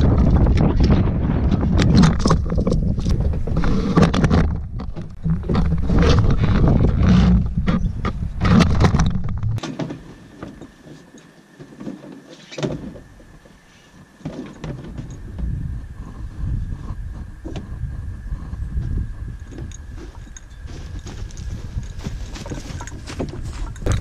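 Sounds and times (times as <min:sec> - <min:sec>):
wind buffeting: 0:00.0 - 0:09.6, 0:15.1 - 0:24.0
road rumble: 0:01.6 - 0:09.6
light steps and knocks: 0:18.8 - 0:24.0.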